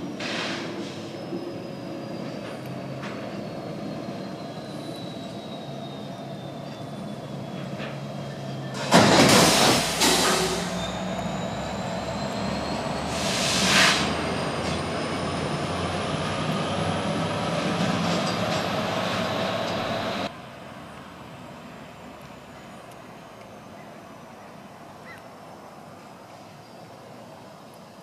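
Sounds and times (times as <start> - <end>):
high wheel squeal: 0.0 - 20.3, 26.3 - 27.2
freight train wheels rumbling: 0.0 - 25.2
loud hiss bursts: 8.8 - 10.8, 13.1 - 14.1.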